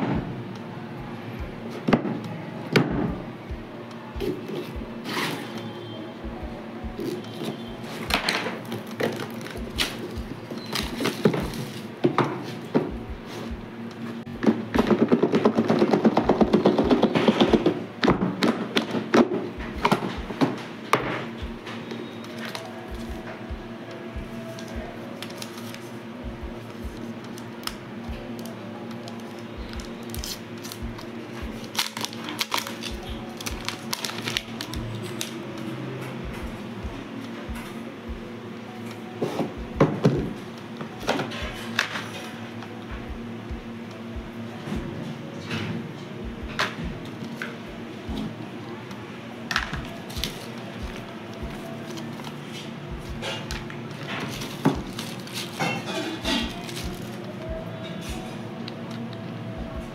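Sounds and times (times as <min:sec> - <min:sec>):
background music with steady beat: 0:00.0 - 0:59.9
plastic packaging crackling: 0:07.0 - 0:12.0, 0:24.3 - 0:26.0, 0:28.4 - 0:35.4, 0:49.4 - 0:52.7, 0:53.3 - 0:57.9
plastic shrink-wrap crinkling: 0:28.4 - 0:35.4, 0:53.3 - 0:57.5.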